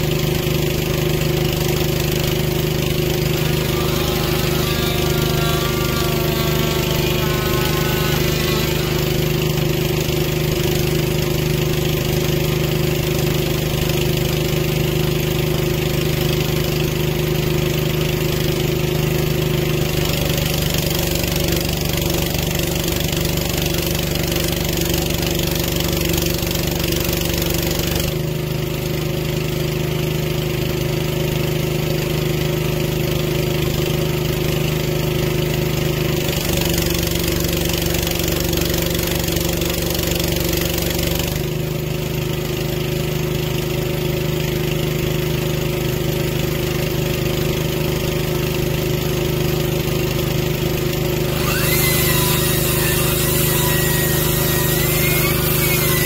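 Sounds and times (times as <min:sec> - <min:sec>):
boom lift engine running: 0:00.7 - 0:12.1, 0:51.1 - 0:56.0.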